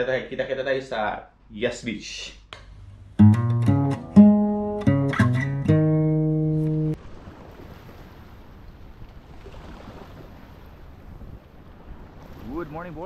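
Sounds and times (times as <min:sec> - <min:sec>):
plucked guitar notes: 0:03.2 - 0:07.0.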